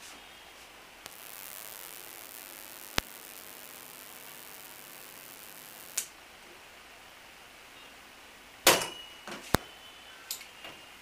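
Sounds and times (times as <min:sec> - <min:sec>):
faint hiss: 0:00.0 - 0:11.0
sharp click: 0:05.9 - 0:06.1.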